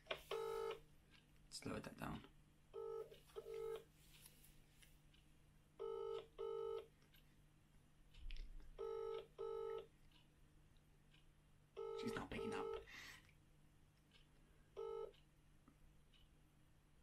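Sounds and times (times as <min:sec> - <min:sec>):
phone ringback tone: 0:00.3 - 0:00.8, 0:02.8 - 0:03.8, 0:05.8 - 0:06.8, 0:08.8 - 0:09.8, 0:11.8 - 0:12.8, 0:14.8 - 0:15.1.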